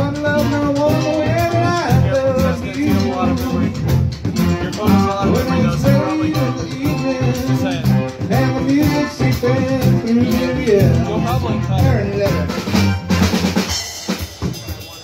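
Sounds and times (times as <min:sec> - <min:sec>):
person singing: 0:00.0 - 0:12.6
drum kit beat: 0:00.0 - 0:15.0
guitar: 0:00.0 - 0:15.0.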